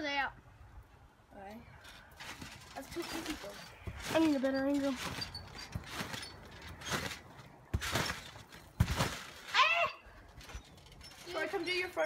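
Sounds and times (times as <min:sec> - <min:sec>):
trampoline landings thumping: 0:02.3 - 0:12.0
person crying out: 0:09.5 - 0:10.0.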